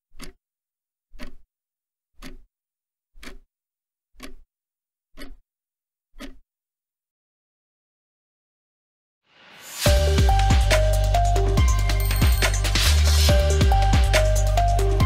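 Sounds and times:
evenly spaced ticks: 0.1 - 0.4, 1.1 - 1.4, 2.2 - 2.5, 3.2 - 3.5, 4.2 - 4.4, 5.2 - 5.4.

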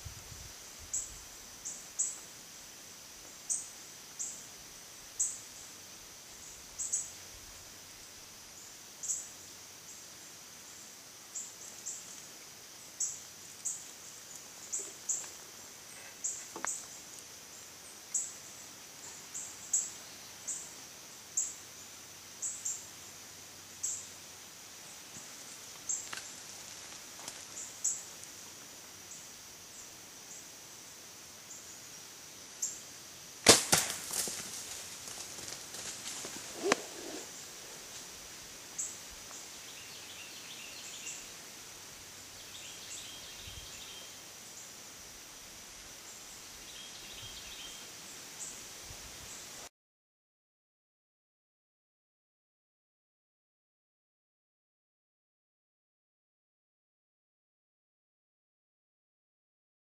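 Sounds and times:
arrow cracks and thumps: 33.4 - 34.6.

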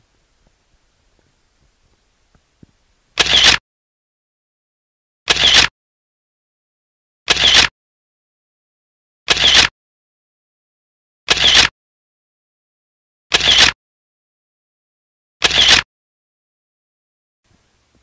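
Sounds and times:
camera shutter snap: 3.2 - 3.6, 5.3 - 5.7, 7.3 - 7.7, 9.3 - 9.7, 11.3 - 11.7, 13.3 - 13.8, 15.4 - 15.9.

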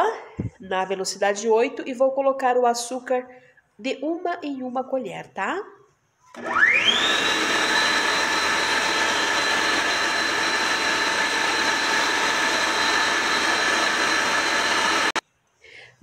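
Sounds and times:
stand mixer motor whine: 6.4 - 15.2.

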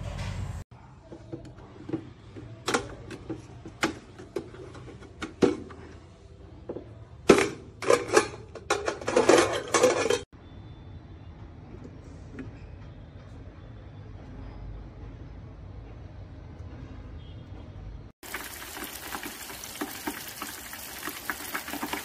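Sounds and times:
wire basket clattering on metal pot: 7.3 - 10.2.

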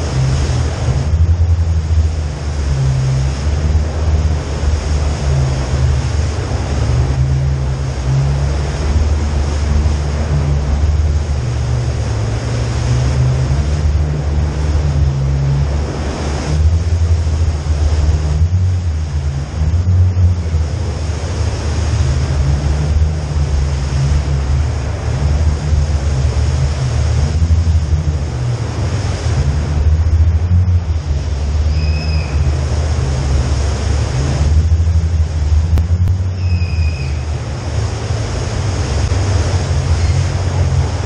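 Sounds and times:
low engine drone: 0.0 - 41.0
wind on microphone: 0.0 - 41.0.

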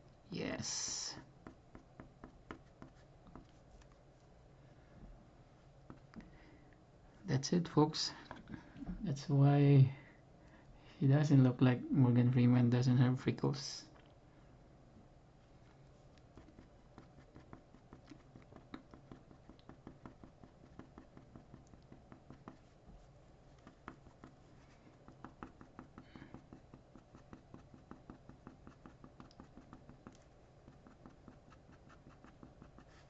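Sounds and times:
pen scratching on paper: 1.4 - 3.6, 16.3 - 22.8, 23.5 - 33.0.

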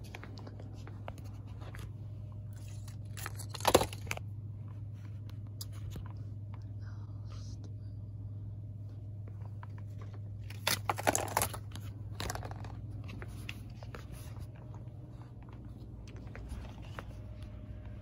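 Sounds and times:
packaging crinkling: 0.0 - 4.3, 9.9 - 14.8
steady low hum: 0.0 - 18.0.

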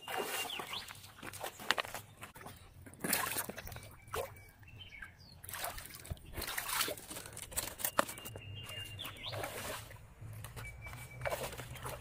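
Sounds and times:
creek water splashing: 0.0 - 4.4, 5.4 - 12.0.

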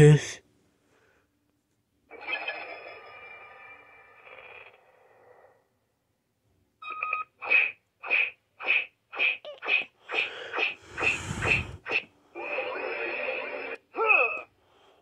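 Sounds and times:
toy electronic tone: 2.1 - 4.7, 12.4 - 14.5
toy beep: 6.8 - 7.3.

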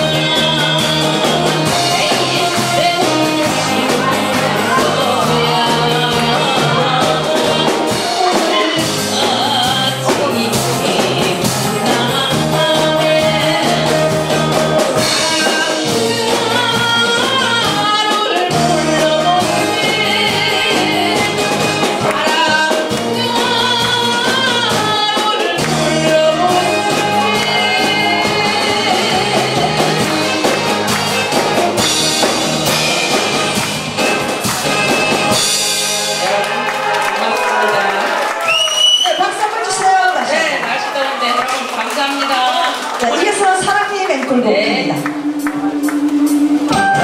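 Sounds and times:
woman singing into microphone: 0.0 - 30.6
amplified musical accompaniment: 0.0 - 37.2, 44.6 - 47.0.

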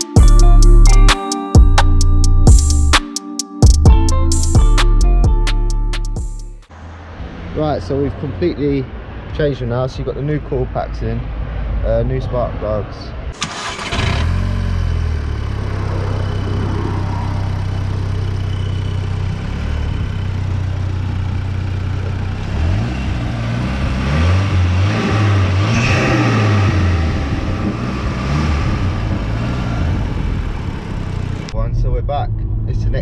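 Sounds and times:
car engine revving: 6.6 - 10.2, 13.4 - 31.6
car engine idling: 13.4 - 31.6.

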